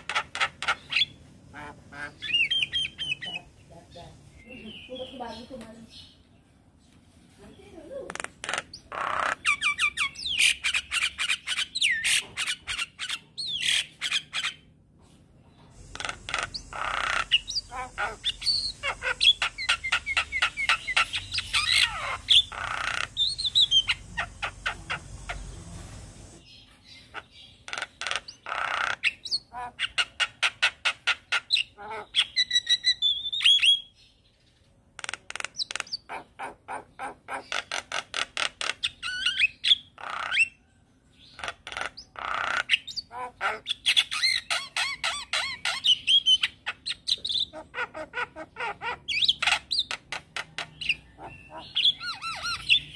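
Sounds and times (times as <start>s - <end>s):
bird clicking and squawking: 0.0s - 3.3s, 8.0s - 13.0s, 15.8s - 25.4s, 35.0s - 39.3s, 49.0s - 52.8s.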